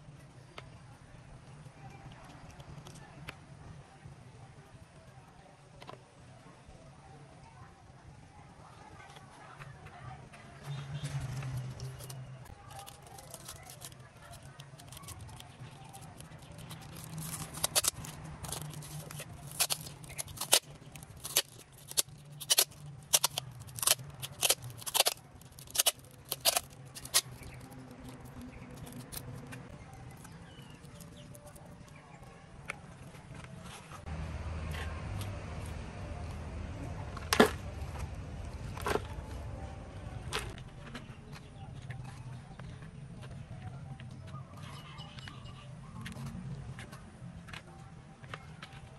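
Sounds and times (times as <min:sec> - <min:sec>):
plastic tape ripping off roll: 0:11.5 - 0:27.8.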